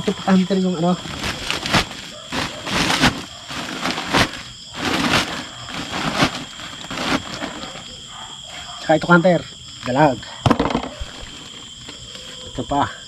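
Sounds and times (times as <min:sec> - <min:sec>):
plastic sack rustling: 0:00.8 - 0:08.0.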